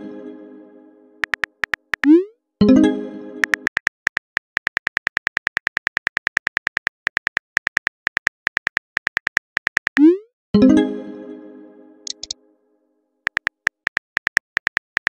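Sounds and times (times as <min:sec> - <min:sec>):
smartphone keyboard clicks: 0:01.2 - 0:02.1, 0:03.4 - 0:10.0, 0:12.1 - 0:12.4, 0:13.3 - 0:15.0.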